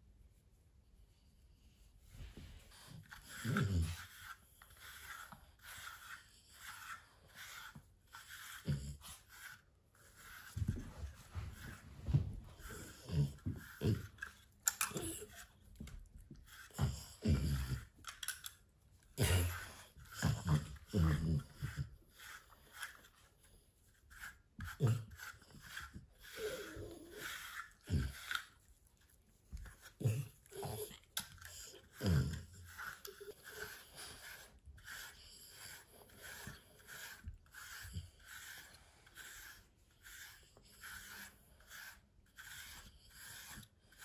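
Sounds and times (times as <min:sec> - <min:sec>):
dog snuffling wheezy breathing: 0:19.1 - 0:23.0, 0:24.6 - 0:28.6, 0:29.7 - 0:44.0.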